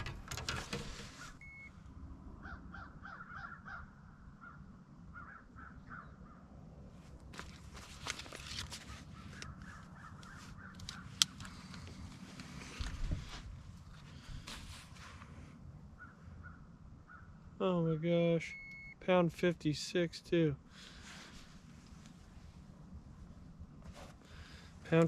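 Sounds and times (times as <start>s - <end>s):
handling clicks and knocks: 0.0s - 1.3s
short beep: 1.4s - 1.7s, 18.4s - 19.0s
birds calling: 2.4s - 6.4s, 8.8s - 12.0s, 15.9s - 18.8s.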